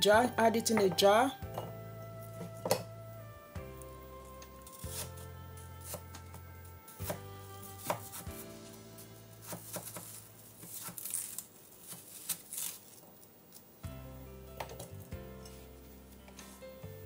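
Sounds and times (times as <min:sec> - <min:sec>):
knife slicing apple: 0:04.6 - 0:06.2, 0:06.9 - 0:08.6, 0:09.4 - 0:12.9
knife striking cutting board: 0:09.4 - 0:11.2.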